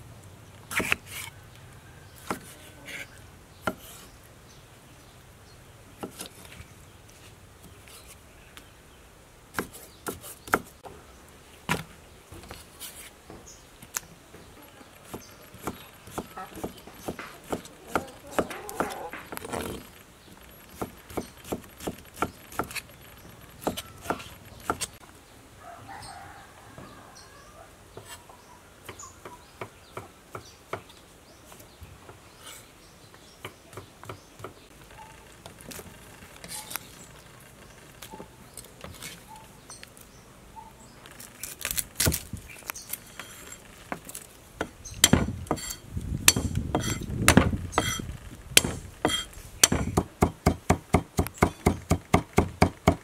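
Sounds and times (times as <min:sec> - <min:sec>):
knife cutting on wooden board: 0:00.7 - 0:01.3, 0:45.0 - 0:50.0.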